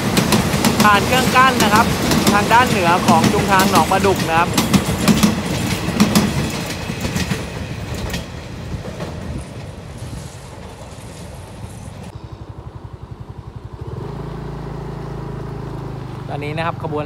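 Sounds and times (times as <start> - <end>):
train wheels clicking over rail joints: 0.0 - 12.2.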